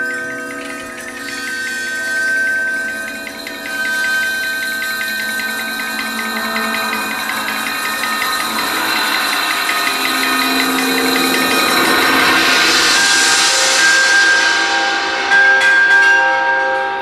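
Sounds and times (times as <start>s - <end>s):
steady held test tones: 0.0s - 15.4s
fast regular ticking: 0.1s - 13.9s
tone sliding in pitch: 5.2s - 14.9s.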